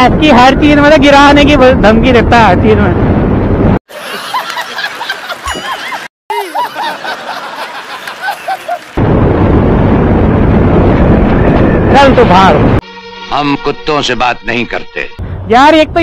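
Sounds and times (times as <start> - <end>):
wind rush: 0.0 - 3.8, 9.0 - 12.8
man laughing heartily: 3.9 - 9.0.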